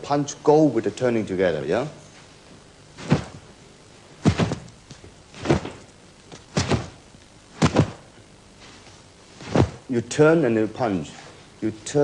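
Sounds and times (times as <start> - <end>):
feet shifting on wooden floor: 3.0 - 3.5, 4.2 - 7.0, 7.6 - 9.9
punch strike snap: 4.2 - 4.7, 6.5 - 7.0, 7.6 - 8.0, 9.4 - 9.9.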